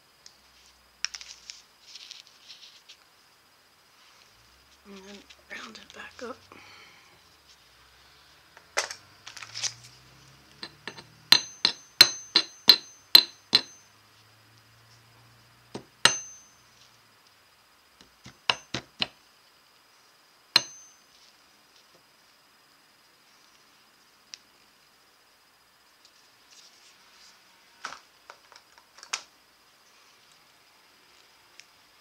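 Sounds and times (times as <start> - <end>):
hammer tapping metal on anvil: 10.6 - 13.9, 15.8 - 16.6, 18.0 - 19.2, 20.6 - 21.0.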